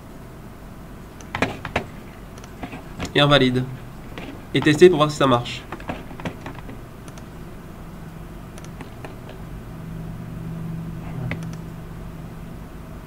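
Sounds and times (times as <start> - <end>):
low room hum: 0.0 - 13.0
faint mouse clicks: 7.0 - 7.3, 8.6 - 9.4.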